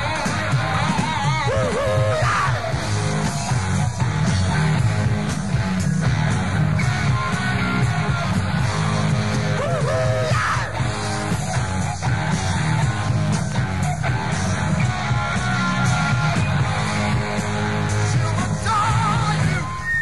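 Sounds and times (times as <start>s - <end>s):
bass guitar: 0.0s - 20.0s
distorted electric guitars: 0.0s - 20.0s
drums: 0.0s - 20.0s.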